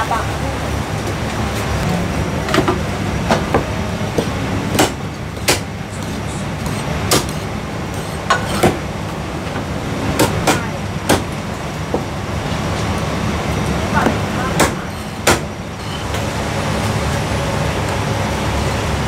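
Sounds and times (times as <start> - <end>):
cleaver chopping on wooden block: 4.7 - 7.4.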